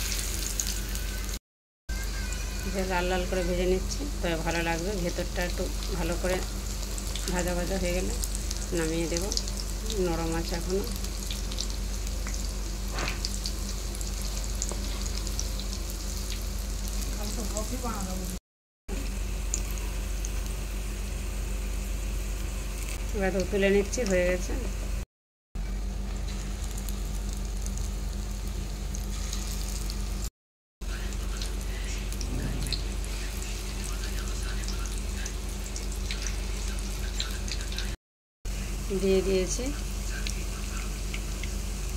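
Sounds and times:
fritters sizzling in hot oil: 0.0 - 1.4, 2.0 - 24.7, 25.9 - 30.3, 30.9 - 41.9
steady low hum: 3.4 - 25.0.

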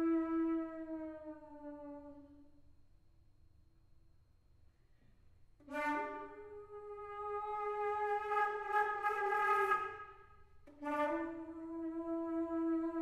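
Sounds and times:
amplified flute notes: 0.0 - 2.5, 5.6 - 13.0.

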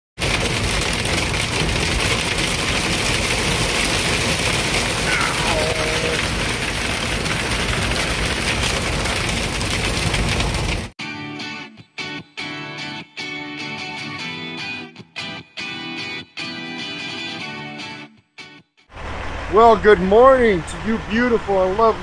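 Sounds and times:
hail and rain on truck cab: 0.2 - 11.0, 19.0 - 22.0.

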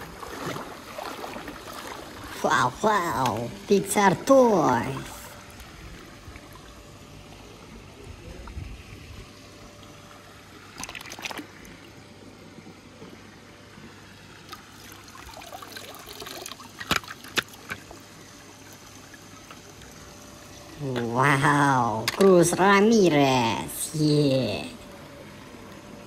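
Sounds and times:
sharp water splashes: 0.0 - 2.5, 10.7 - 11.8
water sloshing and trickling: 0.0 - 23.6.

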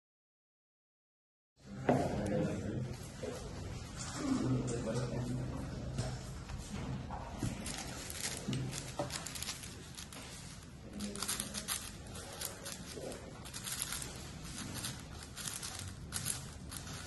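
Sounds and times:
speed cube plastic clicking: 8.0 - 17.0.

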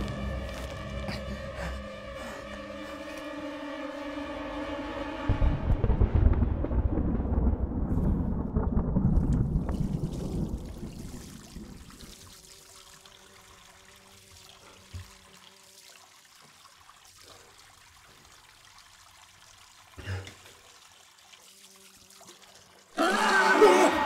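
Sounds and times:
low steady drone: 0.0 - 8.8
dull low thumps: 5.2 - 10.9
tap water trickling over hands: 9.7 - 22.9.

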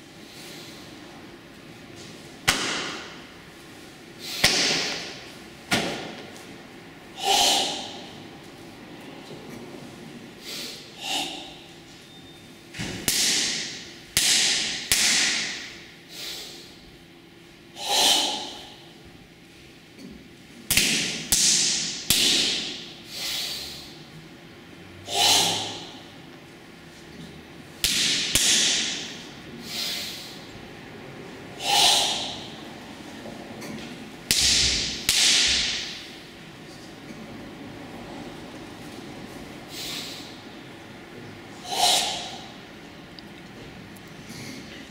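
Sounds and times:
hard hissing exhalations: 23.1 - 24.0, 31.6 - 32.4, 41.6 - 42.4.

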